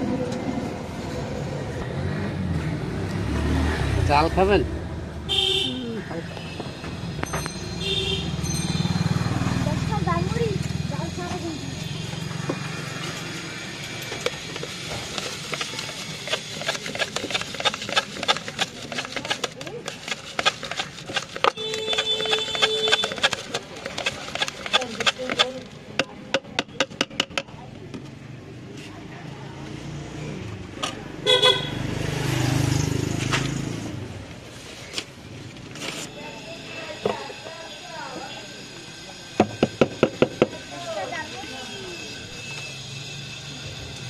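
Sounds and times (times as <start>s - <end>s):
vehicle engine passing: 0.0s - 5.3s, 8.2s - 17.6s, 29.0s - 34.7s
spoon scraping plastic mug: 14.1s - 25.7s.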